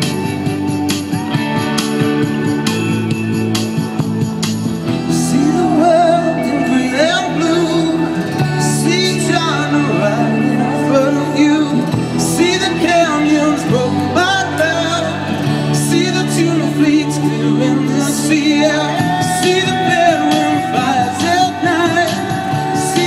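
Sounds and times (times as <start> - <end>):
pop backing track: 0.0 - 23.0
man singing karaoke: 5.0 - 23.0.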